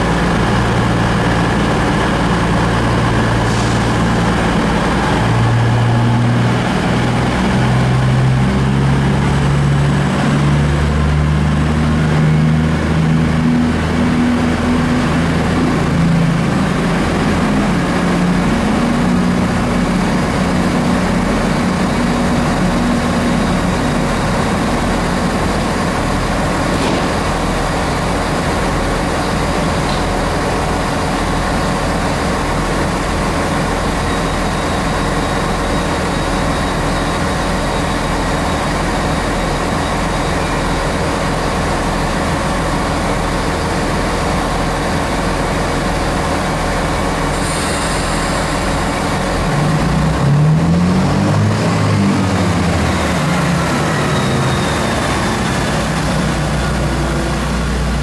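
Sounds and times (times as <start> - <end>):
diesel train engine idling: 0.0 - 58.0
short high hiss: 47.3 - 48.7.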